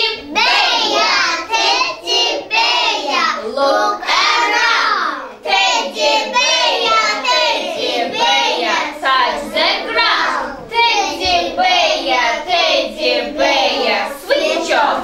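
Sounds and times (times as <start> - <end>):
young children singing: 0.0 - 15.0.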